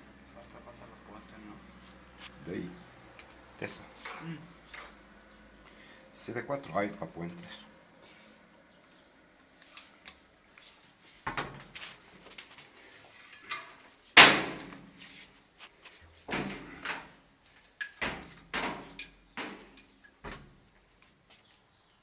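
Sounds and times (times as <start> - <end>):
sharp knocks and clatters: 17.8 - 20.6.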